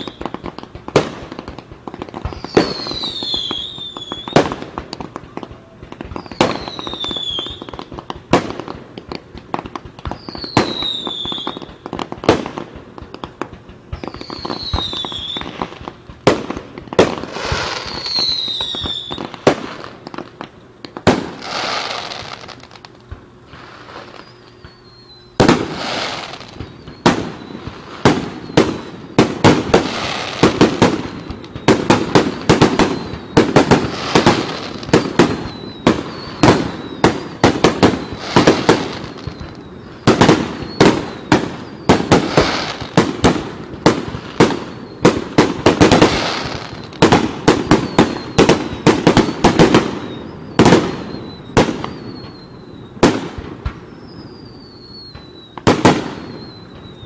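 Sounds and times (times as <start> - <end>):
firework crackling: 0.0 - 57.0
firework shells bursting with bangs: 0.0 - 57.0.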